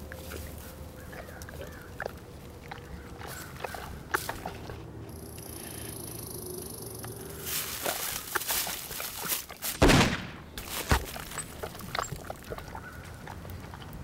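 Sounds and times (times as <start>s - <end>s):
rustles and clicks: 7.0s - 12.6s
rifle shot: 9.7s - 11.0s.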